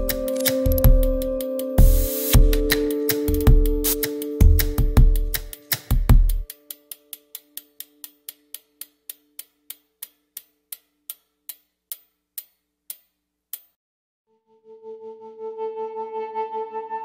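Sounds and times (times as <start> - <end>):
bicycle freewheel ratchet ticking: 6.4 - 12.1.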